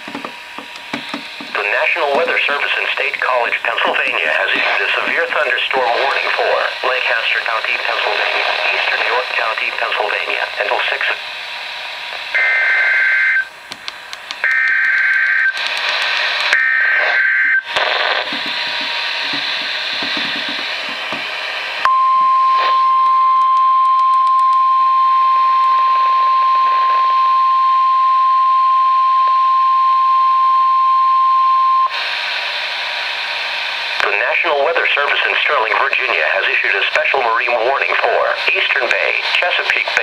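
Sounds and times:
radio hiss: 0:00.1 - 0:21.9, 0:25.9 - 0:27.3, 0:31.7 - 0:40.0.

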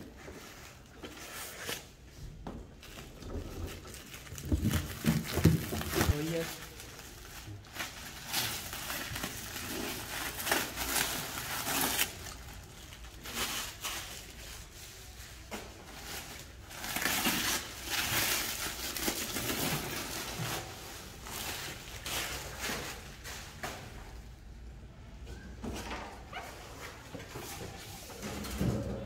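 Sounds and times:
plastic film crinkling: 0:02.8 - 0:23.6.

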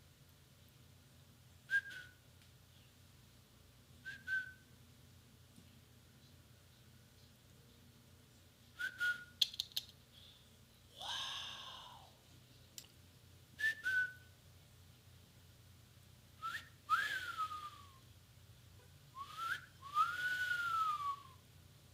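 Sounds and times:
person whistling: 0:01.7 - 0:02.2, 0:04.1 - 0:04.6, 0:08.8 - 0:09.4, 0:13.6 - 0:14.3, 0:16.4 - 0:18.0, 0:19.2 - 0:21.4.

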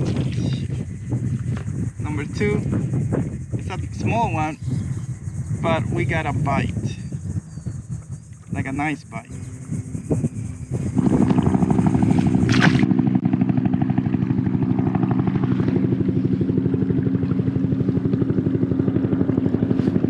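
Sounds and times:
electric jet motor humming: 0:08.6 - 0:20.0.

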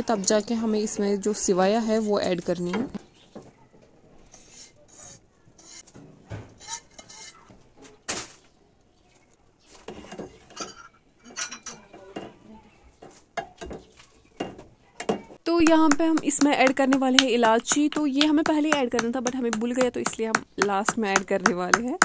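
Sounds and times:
spoon scraping a steel pot: 0:04.3 - 0:05.9, 0:06.6 - 0:07.4.

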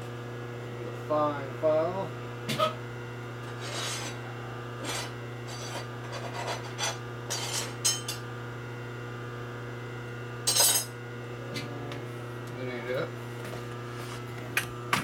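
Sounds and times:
steady electrical hum: 0:00.0 - 0:15.0
hand file rasping on metal: 0:03.6 - 0:04.2.

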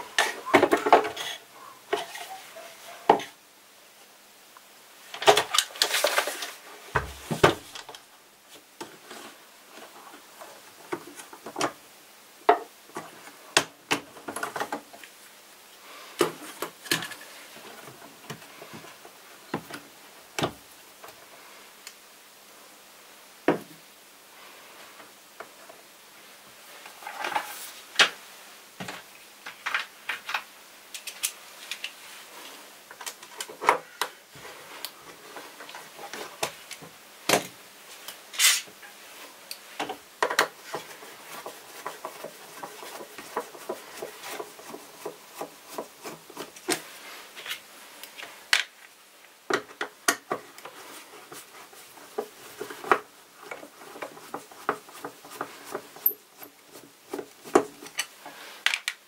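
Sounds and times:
plastic parts clicking and knocking: 0:39.8 - 0:46.8.

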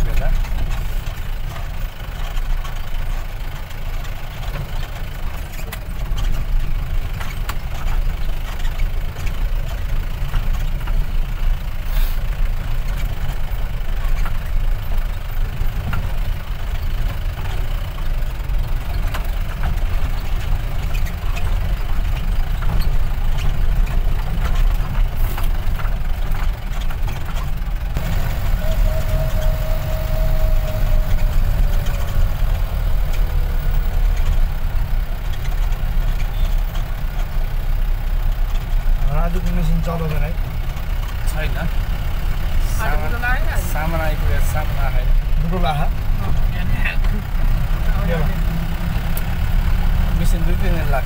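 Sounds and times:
vehicle engine and road rumble: 0:00.0 - 0:51.0
rattles and knocks: 0:12.6 - 0:41.8.

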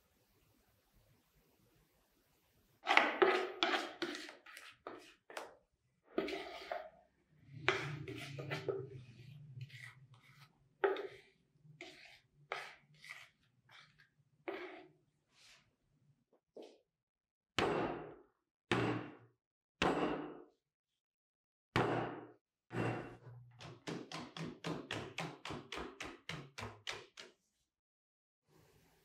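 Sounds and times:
plastic bowl scrapes and taps: 0:02.8 - 0:05.6, 0:06.2 - 0:06.9, 0:07.5 - 0:14.8
spoon scraping plaster: 0:02.8 - 0:15.7.

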